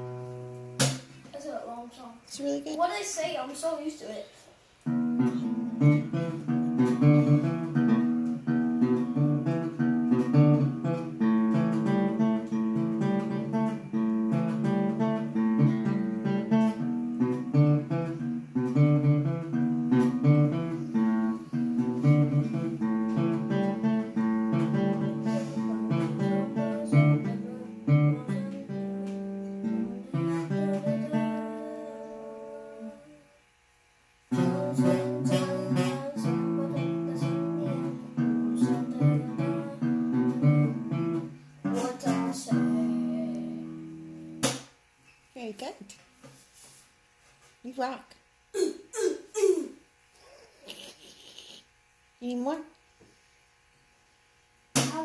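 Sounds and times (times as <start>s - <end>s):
acoustic guitar playing: 0.0s - 4.2s, 4.8s - 33.1s, 34.3s - 44.7s.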